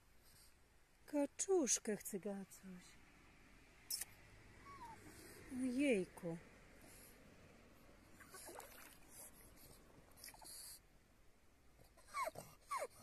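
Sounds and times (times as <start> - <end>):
dog whining: 4.6 - 5.2, 11.9 - 13.0.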